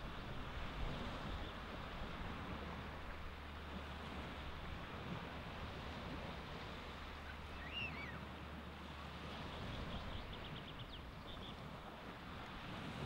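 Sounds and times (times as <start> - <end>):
surf washing on beach: 0.0 - 13.0
bird call: 7.3 - 8.2.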